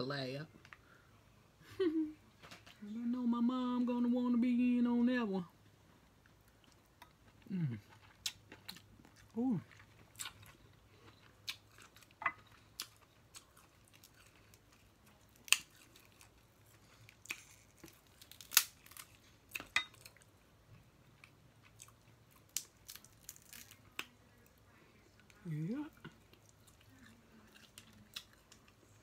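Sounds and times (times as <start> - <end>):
chewing: 5.9 - 29.0
crab shells cracking: 15.4 - 16.3, 17.2 - 20.2, 22.4 - 24.1.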